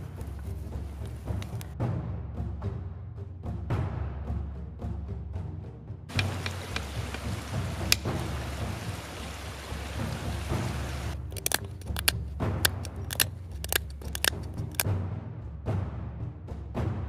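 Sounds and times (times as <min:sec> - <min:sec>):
background music with timpani: 0:00.3 - 0:17.0
sharp strikes on flint: 0:06.1 - 0:08.7, 0:11.2 - 0:14.9
steady hiss: 0:06.1 - 0:11.2
sharp clicks of flakes breaking: 0:11.1 - 0:14.9.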